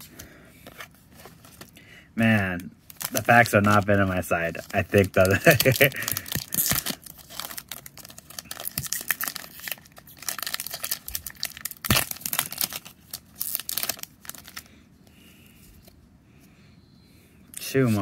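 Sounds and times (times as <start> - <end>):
foil wrapper tearing and crinkling: 2.9 - 14.7.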